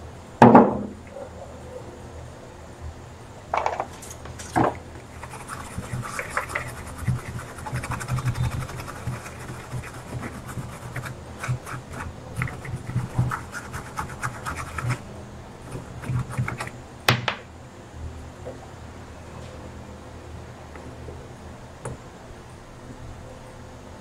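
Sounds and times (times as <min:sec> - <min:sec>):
toothbrush scrubbing circuit board: 0:05.1 - 0:15.1, 0:15.7 - 0:16.8.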